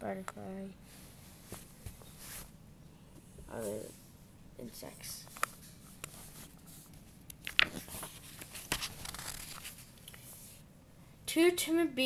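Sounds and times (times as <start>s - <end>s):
paper rustling and crinkling: 5.3s - 10.3s.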